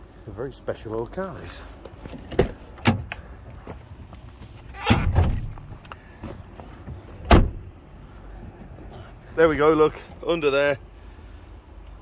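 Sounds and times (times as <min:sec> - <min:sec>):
car door shutting: 0:02.1 - 0:03.2, 0:04.7 - 0:07.7.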